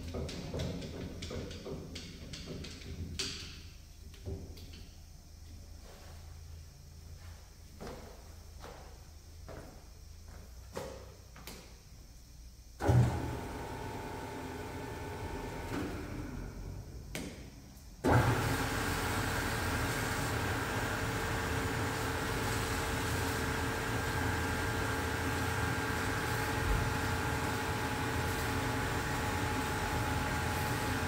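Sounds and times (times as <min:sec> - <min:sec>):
faint machine sound: 0:00.0 - 0:18.1.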